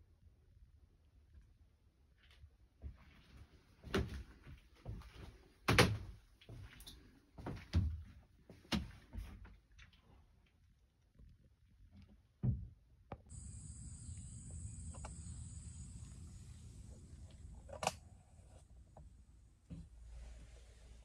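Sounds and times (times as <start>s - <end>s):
high-pitched insect drone: 13.3s - 17.8s.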